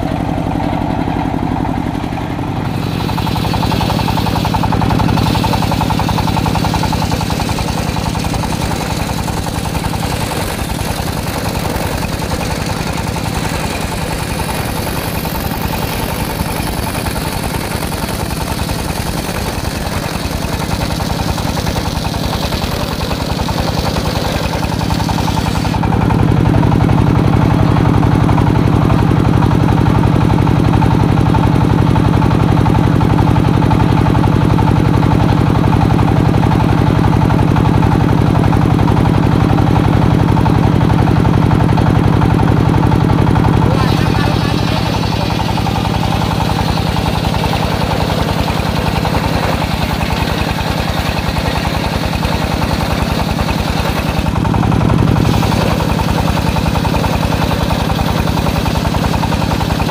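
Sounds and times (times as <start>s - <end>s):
engine drone: 0.0s - 59.9s
circular saw cutting wood: 2.0s - 28.6s, 41.4s - 59.9s.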